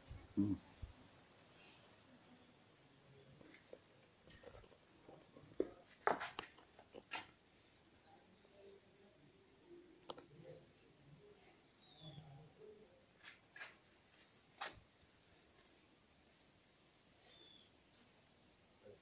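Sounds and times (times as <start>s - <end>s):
small bird chirping: 0.0s - 1.8s, 2.4s - 14.4s, 16.7s - 19.0s.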